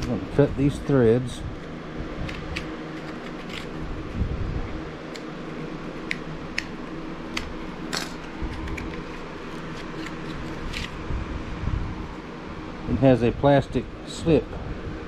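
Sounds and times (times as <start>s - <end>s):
background hum: 0.0s - 15.0s.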